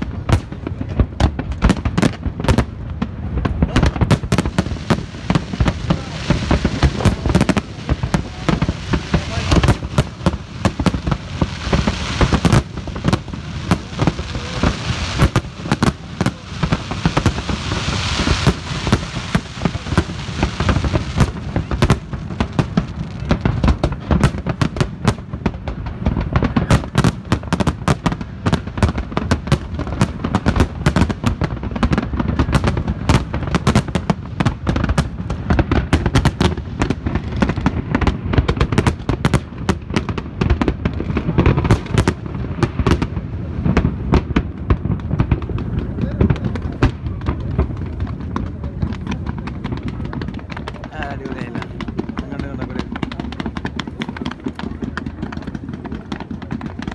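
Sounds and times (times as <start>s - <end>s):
fireworks bursting: 0.0s - 56.9s
hissing crackle: 0.0s - 56.9s.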